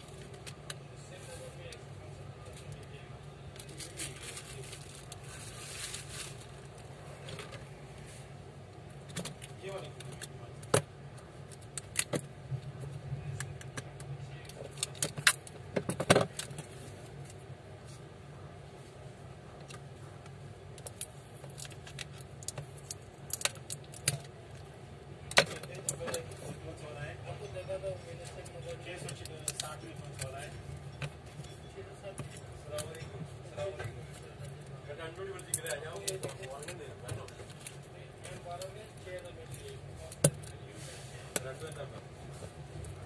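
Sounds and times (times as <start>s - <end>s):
low background hum: 0.0s - 43.0s
plastic packaging crinkling: 3.6s - 6.8s.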